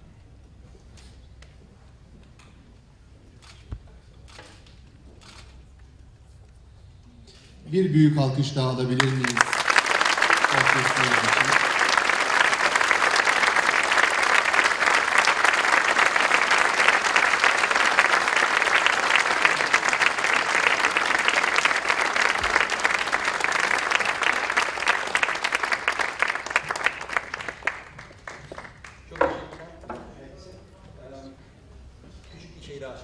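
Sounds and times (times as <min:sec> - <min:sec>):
audience applauding: 0:08.6 - 0:29.8.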